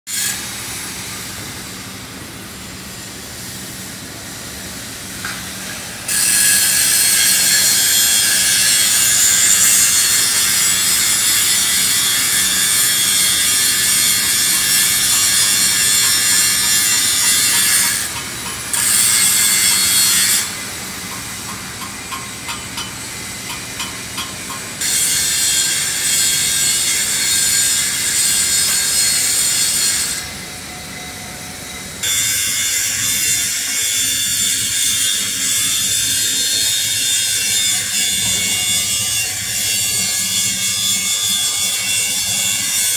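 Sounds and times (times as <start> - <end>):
arc welding crackling hiss: 0.1 - 30.5.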